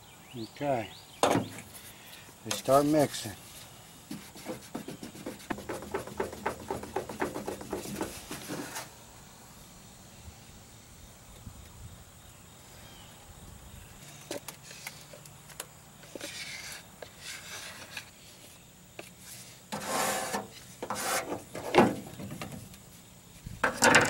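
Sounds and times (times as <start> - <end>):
stick scraping plastic cup: 16.1 - 18.2, 19.0 - 22.0.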